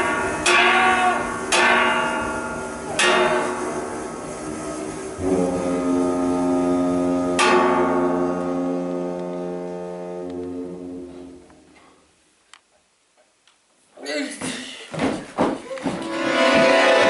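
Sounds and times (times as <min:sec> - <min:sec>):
concertina chord: 0:05.2 - 0:11.7, 0:16.0 - 0:17.0.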